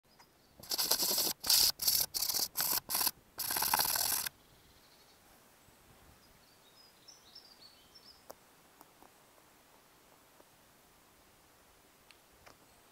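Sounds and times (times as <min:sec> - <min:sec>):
camera handling rubbing and scraping: 0:00.6 - 0:04.3
faint bird chirps: 0:03.5 - 0:08.4.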